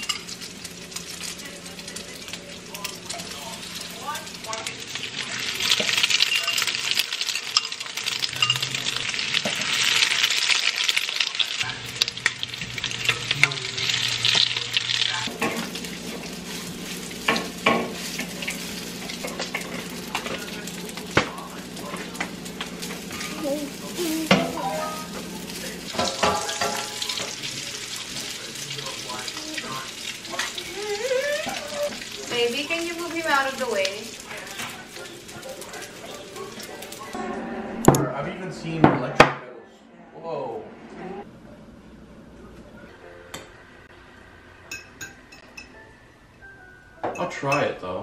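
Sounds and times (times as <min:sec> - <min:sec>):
meat sizzling in a pan: 0:00.0 - 0:37.1.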